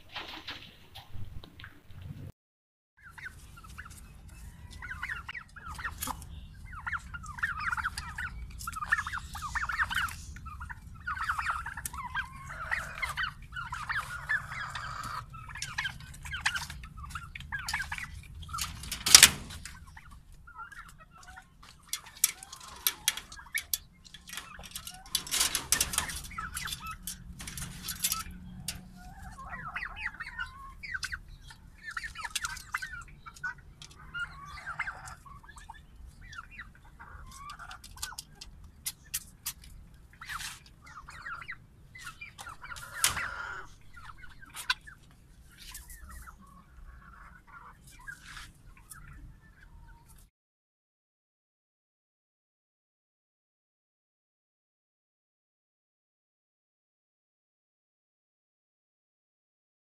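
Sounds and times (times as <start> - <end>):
turkeys clucking and calling: 3.0 - 50.3.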